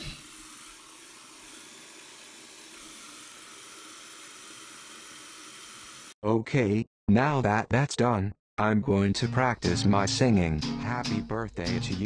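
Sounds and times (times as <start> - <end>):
water running from tap into sink: 0.0 - 6.2.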